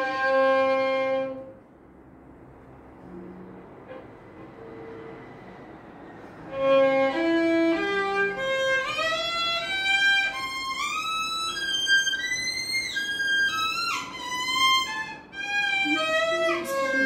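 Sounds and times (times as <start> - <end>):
solo violin arpeggio: 6.5 - 17.0.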